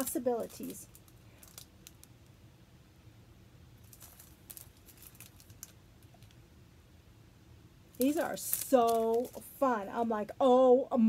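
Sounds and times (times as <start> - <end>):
plastic packets crinkling: 0.0 - 2.1, 3.8 - 6.4, 8.0 - 9.6
light crackles: 0.0 - 2.4, 3.8 - 6.5, 7.9 - 9.6
room hum: 0.0 - 11.0.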